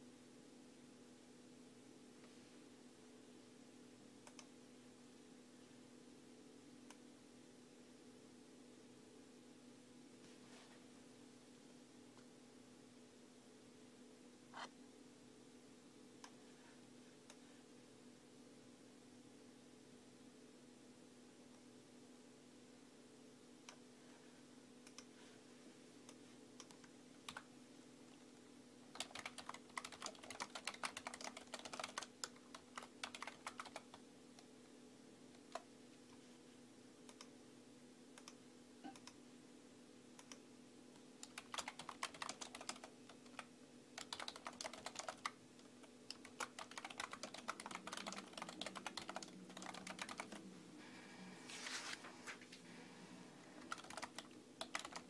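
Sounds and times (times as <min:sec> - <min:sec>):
faint low hum: 0:00.0 - 0:55.0
rapid keyboard typing: 0:26.6 - 0:27.5, 0:28.9 - 0:34.4, 0:41.2 - 0:50.6, 0:53.6 - 0:55.0.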